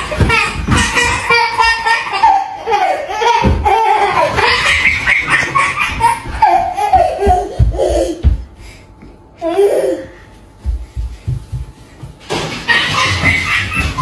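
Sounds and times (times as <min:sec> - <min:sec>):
toddler laughing and squealing: 0:00.0 - 0:08.2, 0:12.7 - 0:14.0.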